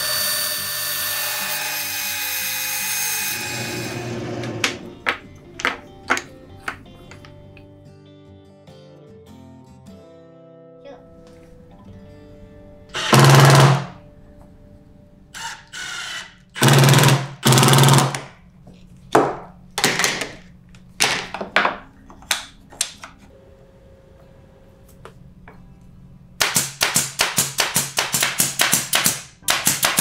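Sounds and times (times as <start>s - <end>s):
plywood knocks and taps: 4.6s - 7.3s
drill driving screws: 13.0s - 13.9s, 15.4s - 18.2s.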